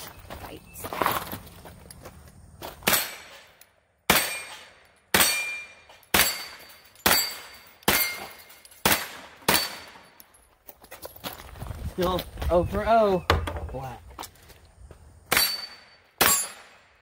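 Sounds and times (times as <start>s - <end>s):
rifle shots echoing: 2.8s - 10.0s
steel targets ringing: 4.1s - 10.2s, 15.3s - 16.8s.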